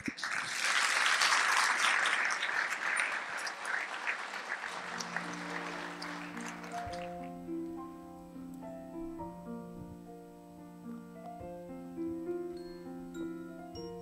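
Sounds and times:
audience applauding: 0:00.0 - 0:07.5
piano sustained notes: 0:04.8 - 0:14.0.

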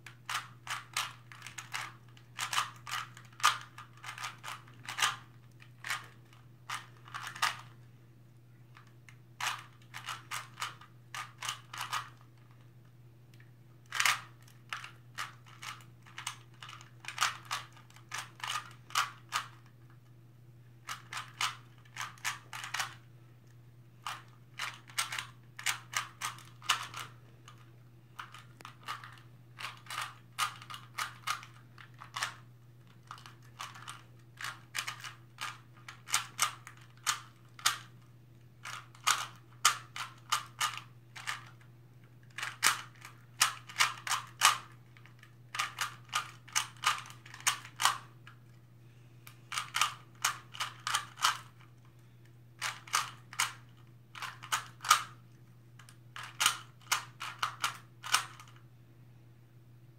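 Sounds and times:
puzzle cube clicking: 0:00.3 - 0:07.7, 0:24.0 - 0:27.6, 0:28.2 - 0:32.4, 0:42.3 - 0:48.4, 0:49.5 - 0:51.6, 0:52.6 - 0:53.6.

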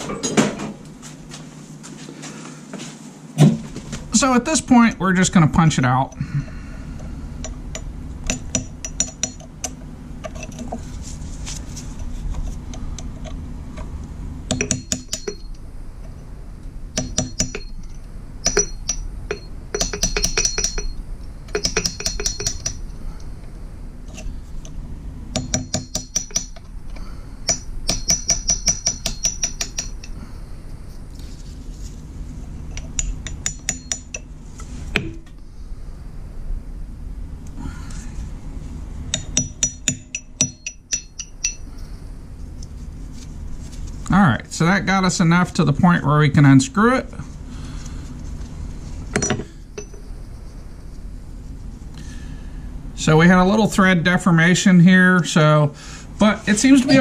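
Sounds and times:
hammer tapping metal punch: 0:07.4 - 0:10.7, 0:14.5 - 0:15.6, 0:17.0 - 0:23.0, 0:25.3 - 0:26.7, 0:27.4 - 0:30.2, 0:32.7 - 0:34.3, 0:35.0 - 0:35.3, 0:39.1 - 0:41.8, 0:49.1 - 0:50.1.

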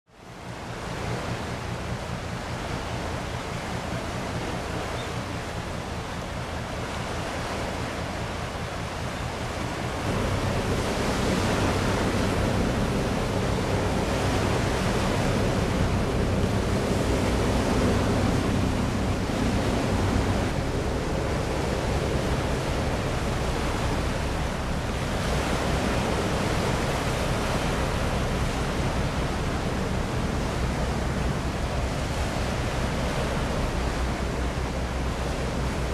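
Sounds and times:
waves washing: 0:00.2 - 0:35.9
wind on microphone: 0:00.6 - 0:35.9
low steady hum: 0:07.8 - 0:35.9.

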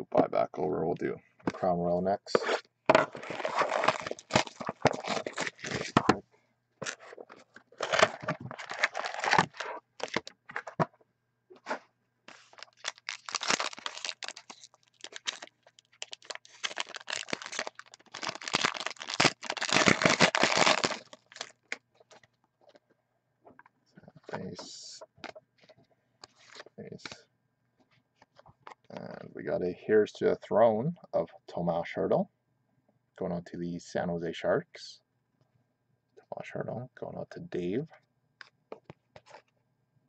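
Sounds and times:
foil wrapper being torn open: 0:03.2 - 0:06.0, 0:07.8 - 0:10.3, 0:12.3 - 0:21.8.

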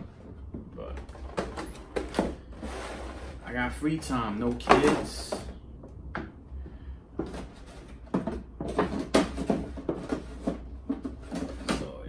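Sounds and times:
plastic trays knocking: 0:04.5 - 0:06.3, 0:07.2 - 0:12.0.

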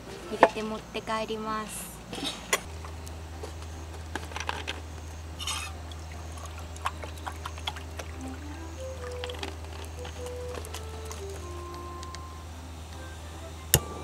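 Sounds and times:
water pouring into pot: 0:05.4 - 0:10.8.

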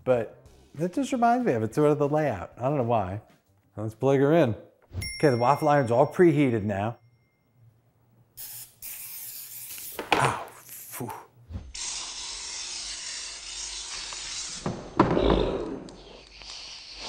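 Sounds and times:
cooking spray hissing: 0:08.4 - 0:10.2.

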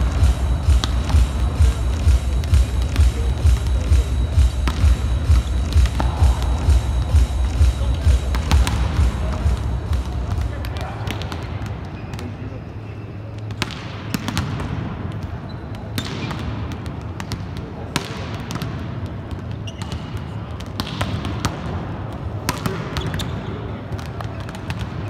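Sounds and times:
volleyballs smacking: 0:00.0 - 0:12.4, 0:13.4 - 0:25.0
steady low hum: 0:00.0 - 0:19.5.

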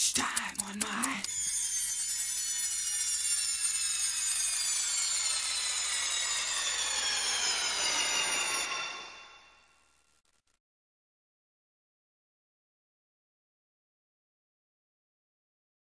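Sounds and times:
ringing tones sliding downward: 0:00.7 - 0:10.0.

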